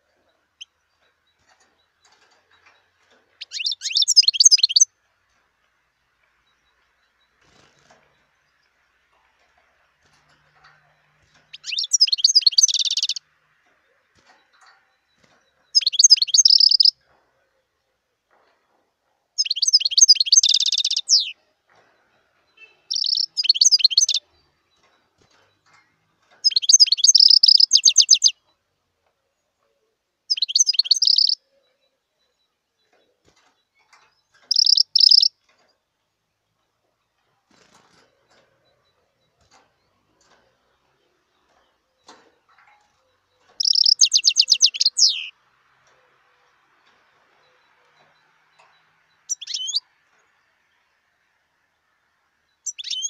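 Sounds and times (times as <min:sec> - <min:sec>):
goldfinch twittering: 0:03.4 - 0:04.9, 0:11.4 - 0:13.2, 0:15.2 - 0:17.0, 0:19.4 - 0:21.4, 0:22.6 - 0:24.4, 0:26.4 - 0:28.4, 0:30.3 - 0:31.4, 0:34.4 - 0:35.3, 0:43.4 - 0:45.4, 0:47.4 - 0:50.0, 0:52.6 - 0:53.0.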